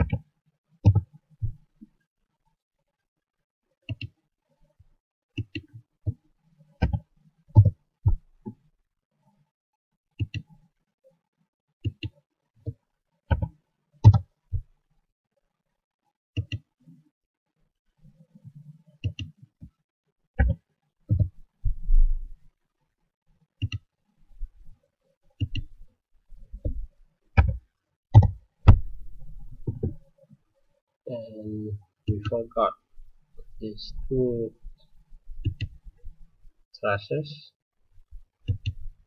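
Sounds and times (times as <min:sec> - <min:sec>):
computer mouse clicks: 0:03.9 - 0:04.2, 0:10.2 - 0:10.5, 0:11.8 - 0:12.2, 0:16.4 - 0:16.7, 0:19.0 - 0:19.4, 0:23.6 - 0:23.8, 0:25.4 - 0:25.7, 0:35.4 - 0:35.8, 0:38.4 - 0:38.8.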